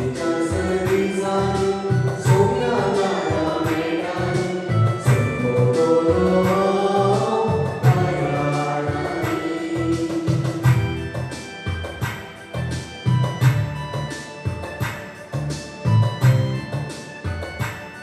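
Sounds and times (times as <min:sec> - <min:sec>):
instrumental backing with beat: 0:00.0 - 0:18.0
choir singing a hymn: 0:02.6 - 0:10.6.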